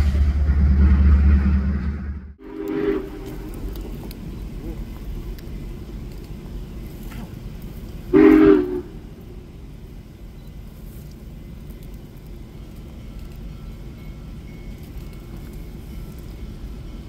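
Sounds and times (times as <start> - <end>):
steam locomotive whistle blast: 2.4 - 3.6, 8.1 - 9.0.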